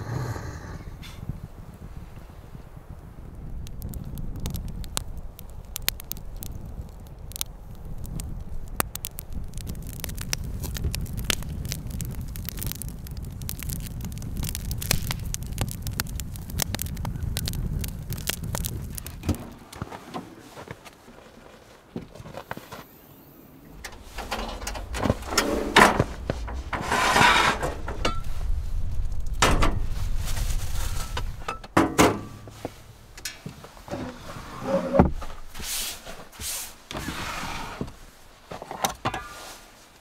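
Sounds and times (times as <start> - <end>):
campfire crackling and popping: 0.4 - 21.1, 22.4 - 34.2
drawer pulled out: 23.8 - 28.0, 33.9 - 35.3, 36.9 - 38.0
tailgate opening: 23.8 - 28.2, 31.7 - 32.4.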